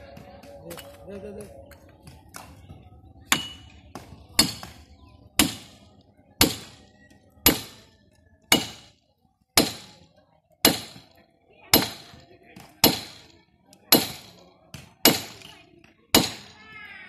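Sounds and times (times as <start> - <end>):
axe chopping tree trunk: 3.3 - 4.8, 5.4 - 5.8, 6.4 - 7.8, 8.5 - 9.0, 9.6 - 10.0, 10.6 - 11.1, 11.7 - 15.5, 16.1 - 16.5.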